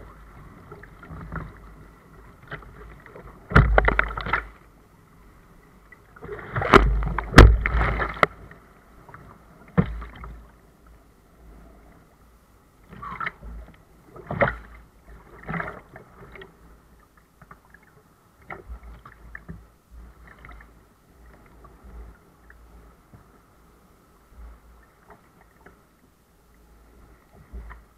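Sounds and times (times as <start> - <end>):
water splashing against kayak hull: 0.0 - 4.7, 5.9 - 10.6, 12.8 - 23.3.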